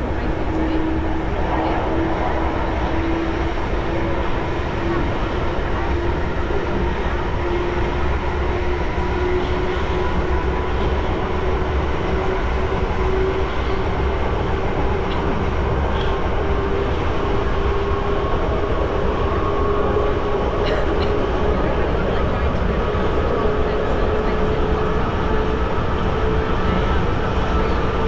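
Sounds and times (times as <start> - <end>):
train wheels rumbling on rails: 0.0 - 28.0.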